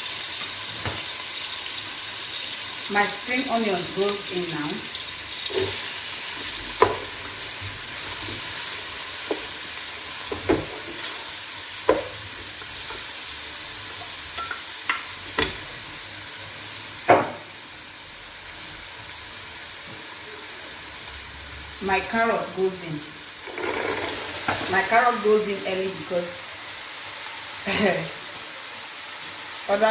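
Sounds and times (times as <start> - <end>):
onions sizzling in a pot: 0.0 - 29.9
wooden spatula knocking a pot: 11.9 - 12.2.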